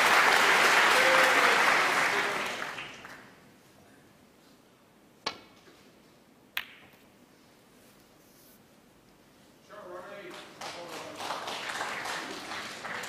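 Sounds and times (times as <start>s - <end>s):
audience applause: 0.0s - 3.3s, 10.1s - 13.0s.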